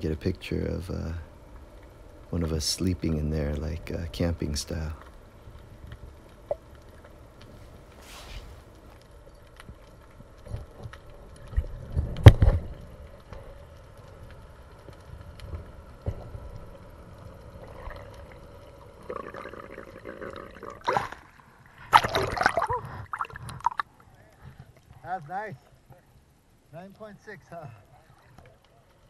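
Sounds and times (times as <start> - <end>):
faint steady hum: 0.0 - 29.0
rushing water: 20.6 - 24.0
water splash: 20.7 - 23.9.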